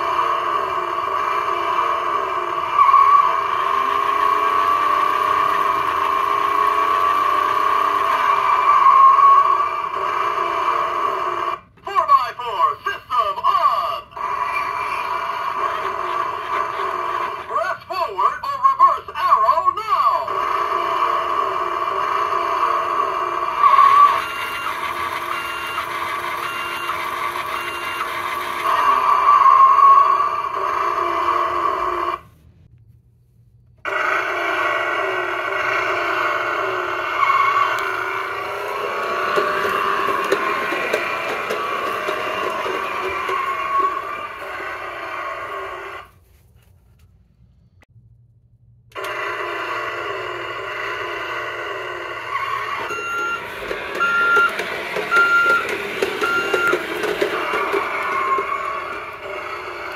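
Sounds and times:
toy truck motor whirring: 0:00.0 - 0:18.1, 0:18.8 - 0:32.3, 0:33.9 - 0:46.1, 0:48.9 - 0:59.9
short electronic beeps: 0:23.7 - 0:28.1, 0:52.8 - 0:57.5.

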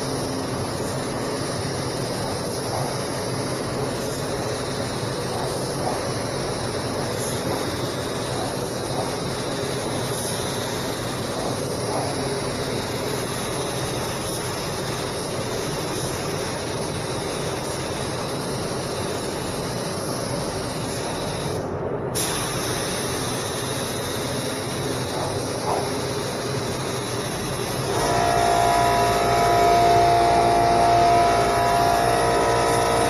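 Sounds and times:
spray gun hissing: 0:00.0 - 0:33.0.

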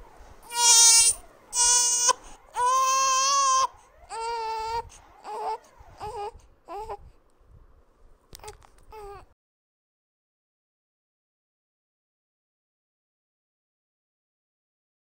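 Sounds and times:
infant crying: 0:00.4 - 0:07.0, 0:08.9 - 0:09.3.

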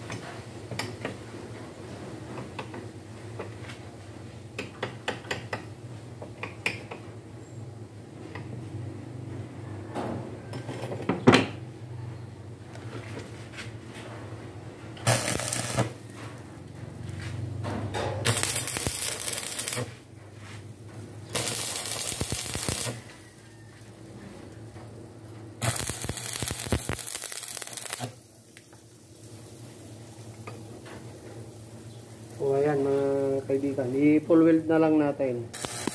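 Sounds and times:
welding arc crackle and sizzle: 0:15.0 - 0:35.9.

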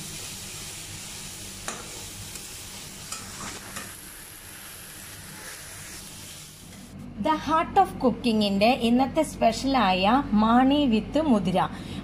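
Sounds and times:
food sizzling: 0:00.0 - 0:07.0.

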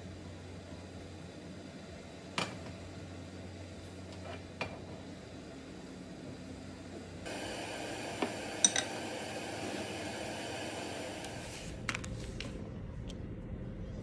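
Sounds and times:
dishes clinking: 0:08.6 - 0:09.0.

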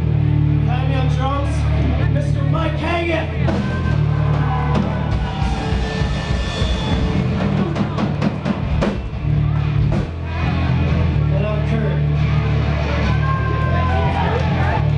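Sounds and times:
bass guitar: 0:00.0 - 0:14.9
electric guitars: 0:00.0 - 0:14.9
drum kit: 0:02.7 - 0:14.9.

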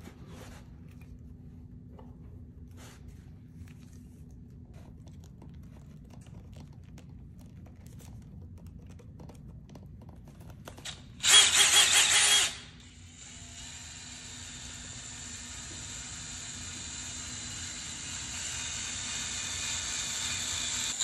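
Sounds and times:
cordless drill spinning: 0:10.8 - 0:21.0.

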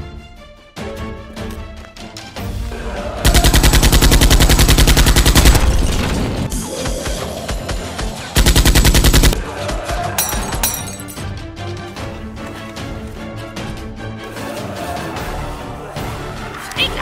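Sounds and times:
background music: 0:00.0 - 0:17.0
automatic gunfire bursts: 0:03.3 - 0:06.0, 0:08.4 - 0:09.4.

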